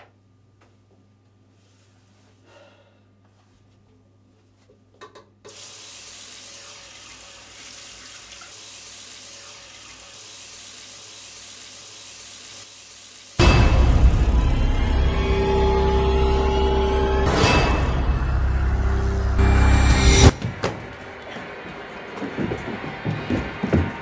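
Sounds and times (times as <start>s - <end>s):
faucet running into sink: 5.5s - 13.4s.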